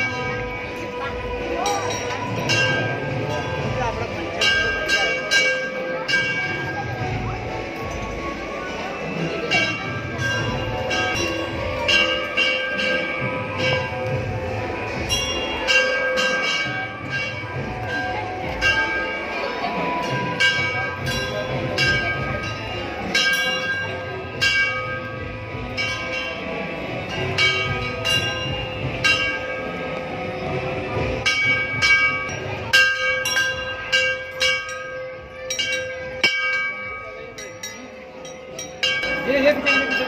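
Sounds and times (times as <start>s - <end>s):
temple bells ringing: 0.0s - 40.0s.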